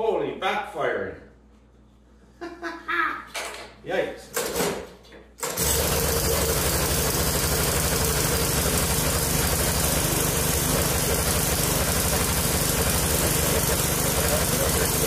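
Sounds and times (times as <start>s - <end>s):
push mower engine running: 5.4s - 15.0s.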